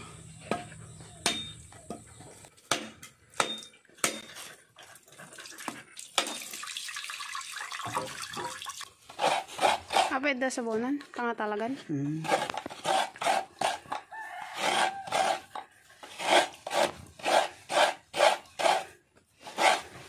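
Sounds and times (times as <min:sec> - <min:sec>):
water splashing and dripping: 0:04.9 - 0:09.0.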